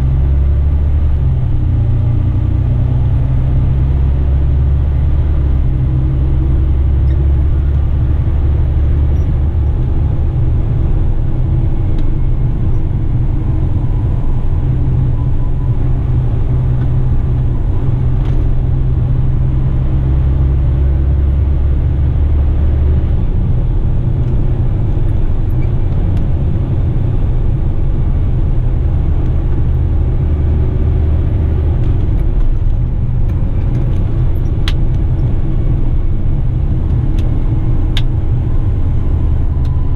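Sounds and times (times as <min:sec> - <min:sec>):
truck engine drone from cab: 0:00.0 - 0:39.9.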